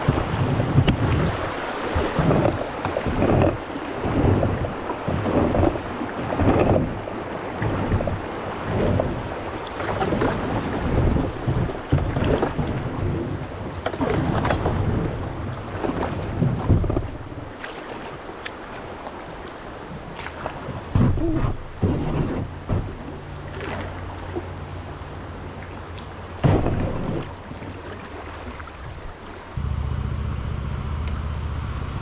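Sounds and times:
wind buffeting microphone: 0.0 - 18.4
paddle splashing water: 0.0 - 31.8.

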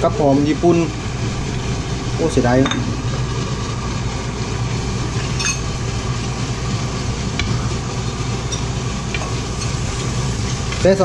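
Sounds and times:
stew sizzling in a frying pan: 1.4 - 11.0.

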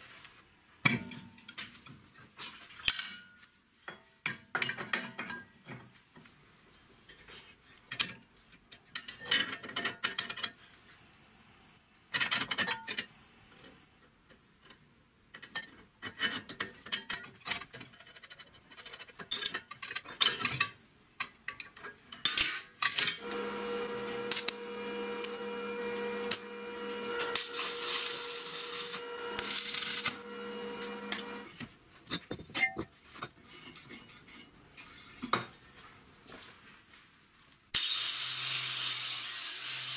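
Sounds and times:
steel parts clinking and scraping: 7.1 - 10.7, 14.6 - 35.2
steady mechanical hum: 23.2 - 31.6.

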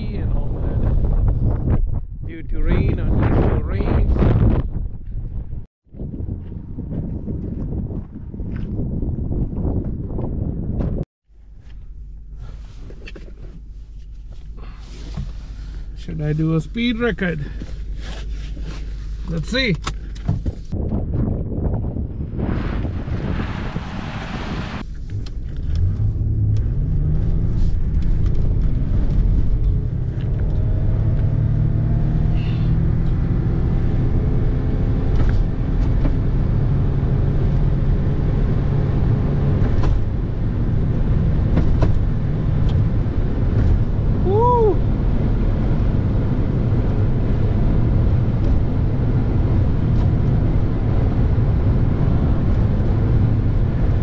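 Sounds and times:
tyre and road rumble: 0.0 - 54.0
car engine accelerating: 22.4 - 54.0.

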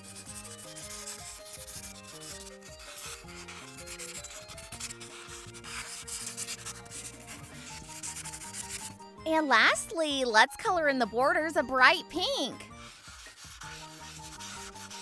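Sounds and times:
marker scratching on paper: 0.0 - 9.0, 12.1 - 15.0
quiet background music: 0.0 - 15.0.

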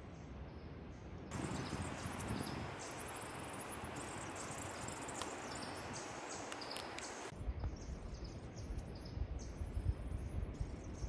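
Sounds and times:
steady hiss: 1.3 - 7.3.

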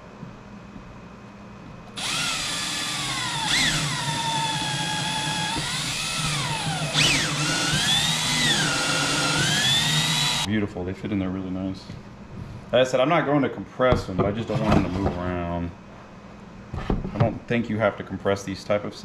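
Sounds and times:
cordless drill motor whine: 2.0 - 10.5.

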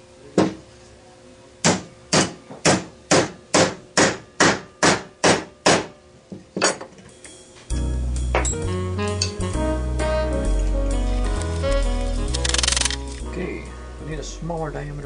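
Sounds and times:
hammer striking steel punch: 1.6 - 5.9.

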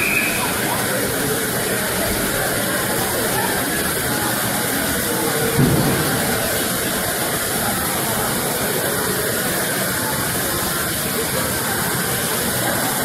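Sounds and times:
steam hissing from locomotive: 0.0 - 13.0
low thump: 5.6 - 6.4.

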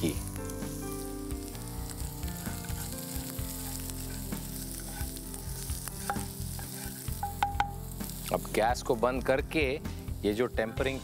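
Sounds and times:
hot oil sizzling in a pan: 0.0 - 11.0
spatula knocking against pan: 7.2 - 7.8.

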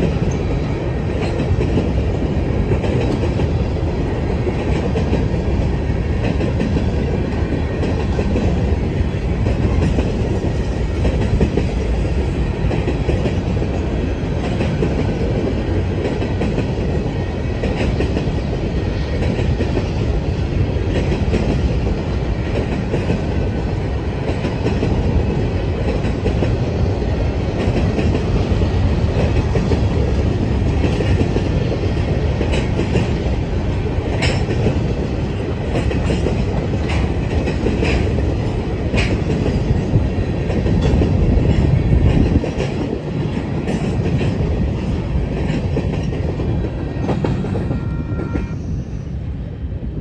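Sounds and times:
freight train rumbling: 0.0 - 50.0
wheels clacking over rail joints: 20.8 - 47.8.

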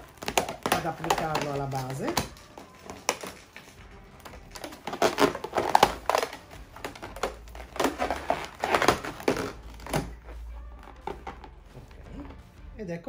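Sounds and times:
balloons rubbing and squeaking: 0.0 - 12.7.

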